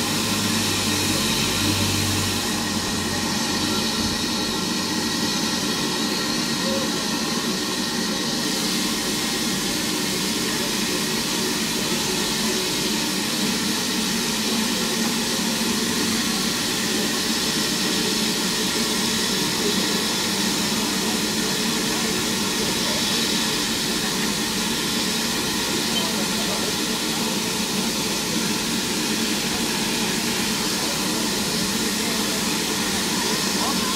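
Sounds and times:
steam hissing from locomotive: 0:00.0 - 0:33.9.

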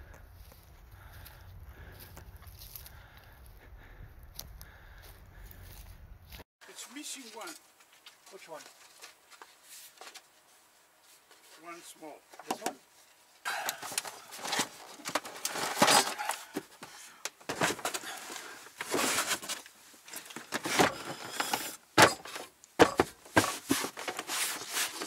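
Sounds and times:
gear loading scrapes and knocks: 0:13.8 - 0:16.8, 0:17.5 - 0:25.0.

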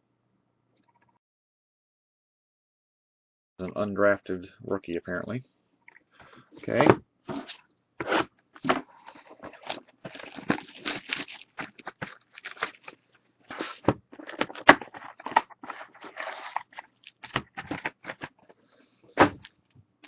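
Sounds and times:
packaging crinkling and tearing: 0:07.4 - 0:18.4.

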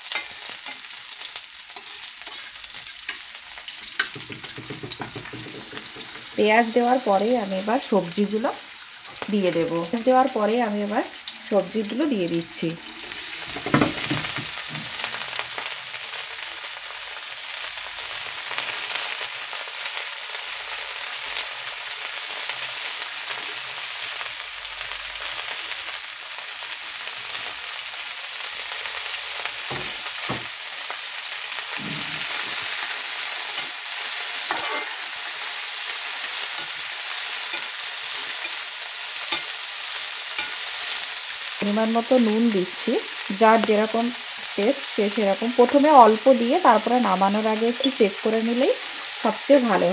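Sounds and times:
vegetables sizzling in oil: 0:00.0 - 0:49.9
spatula knocking and scraping: 0:03.9 - 0:06.4.

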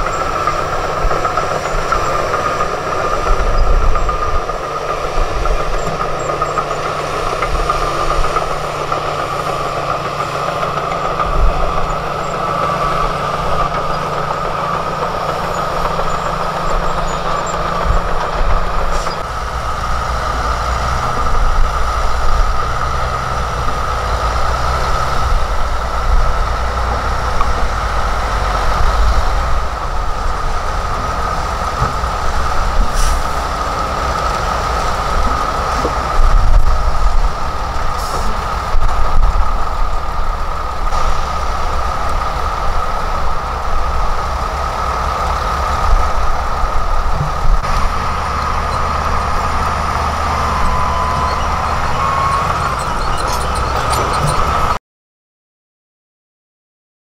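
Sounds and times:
heavy diesel engines running: 0:00.0 - 0:54.8
rock and dirt dumping: 0:20.3 - 0:40.3, 0:44.6 - 0:54.8.

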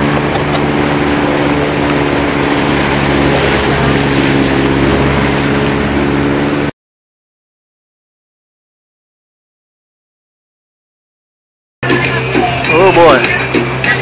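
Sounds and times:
motorboat engine running: 0:00.0 - 0:06.7, 0:11.8 - 0:14.0
wind and water rushing: 0:00.0 - 0:06.7, 0:11.8 - 0:14.0.

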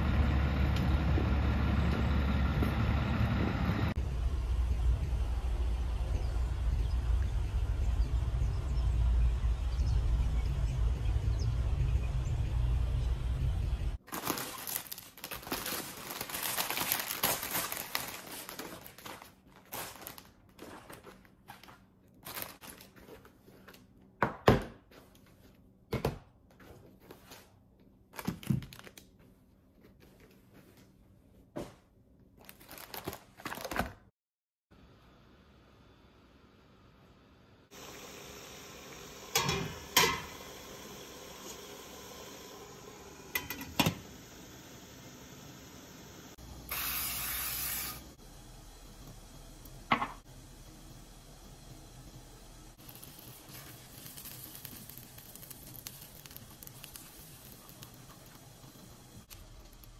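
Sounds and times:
plastic crinkling: 0:14.0 - 0:23.9, 0:28.1 - 0:29.3, 0:32.4 - 0:34.0, 0:52.8 - 0:59.9
cooking oil spray hissing: 0:37.7 - 0:59.9.

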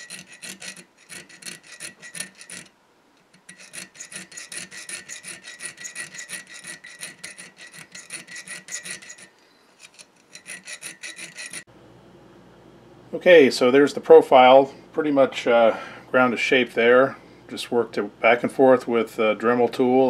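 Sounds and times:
file scraping steel blade: 0:00.0 - 0:11.7.

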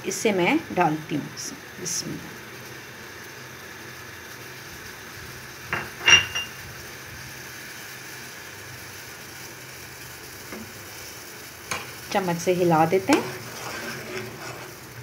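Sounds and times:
low kitchen hiss: 0:00.0 - 0:15.0
metallic clink: 0:05.8 - 0:06.5.

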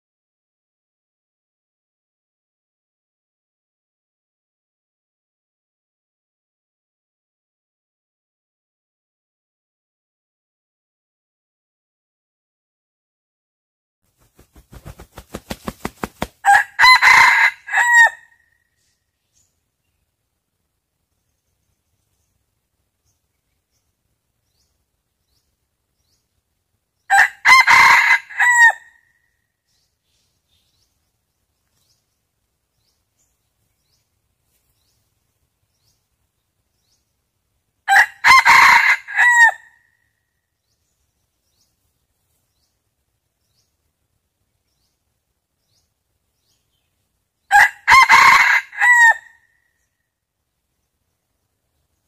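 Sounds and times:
rooster crowing: 0:16.4 - 0:18.4, 0:27.1 - 0:29.0, 0:37.9 - 0:39.8, 0:47.5 - 0:49.4.

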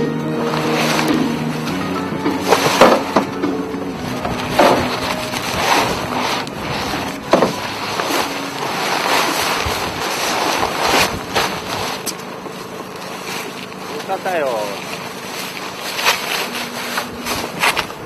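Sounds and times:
wind buffeting microphone: 0:03.9 - 0:12.8.

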